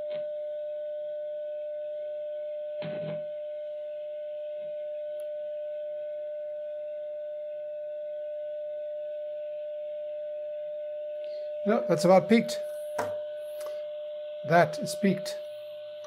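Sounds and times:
radio loudspeaker test tone: 0:02.8 - 0:03.3, 0:11.2 - 0:16.0.

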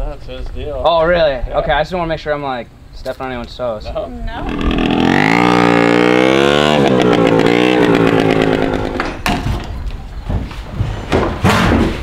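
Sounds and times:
moped engine running: 0:04.4 - 0:09.2.

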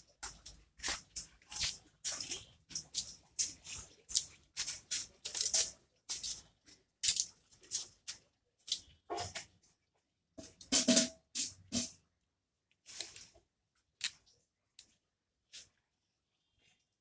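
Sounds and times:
hands rubbing and slapping wet clay: 0:00.0 - 0:09.6.

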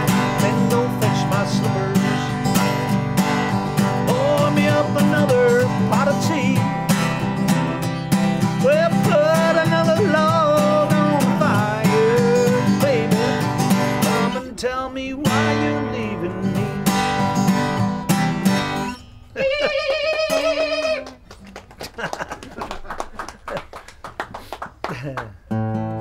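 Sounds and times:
person singing: 0:00.0 - 0:02.5, 0:03.9 - 0:17.0, 0:19.4 - 0:21.2
acoustic guitar strumming: 0:00.0 - 0:21.3, 0:25.5 - 0:26.0.

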